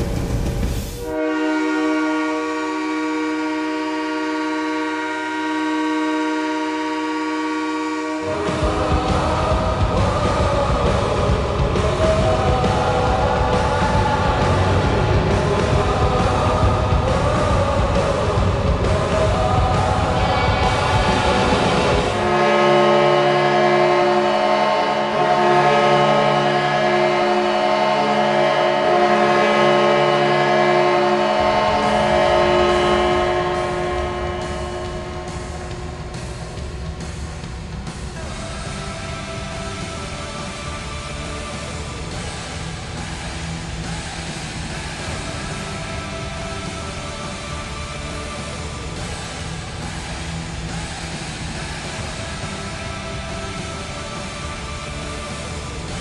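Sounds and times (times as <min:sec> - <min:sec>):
air horn blast: 0:00.9 - 0:40.9.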